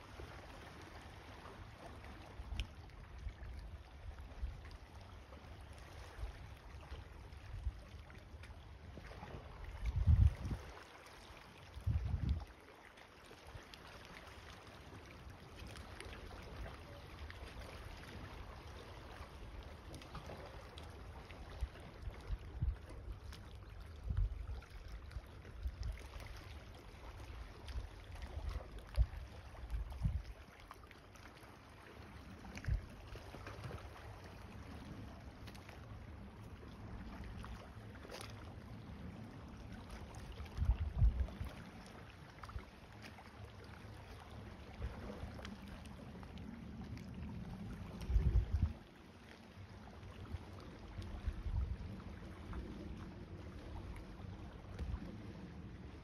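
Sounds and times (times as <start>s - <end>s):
wind buffeting microphone: 9.8s - 10.6s, 11.8s - 12.4s, 29.0s - 30.4s, 40.4s - 41.4s, 47.7s - 48.8s.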